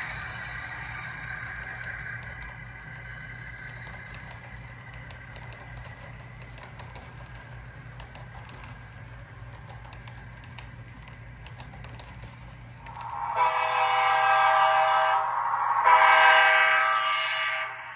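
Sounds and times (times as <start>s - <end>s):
model train wheels clicking: 0.0s - 14.6s
steady low hum: 0.0s - 17.9s
higher tone: 13.1s - 17.9s.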